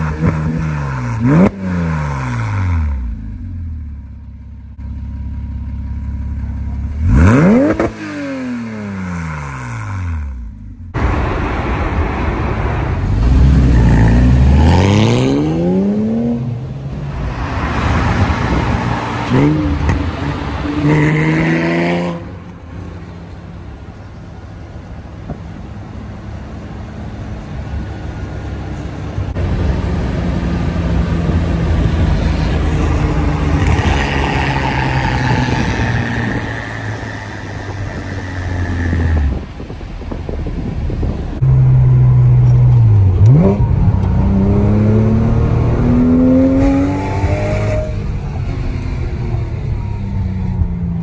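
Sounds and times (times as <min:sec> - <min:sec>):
car engine accelerating: 0:04.8 - 0:23.0, 0:27.6 - 0:51.0.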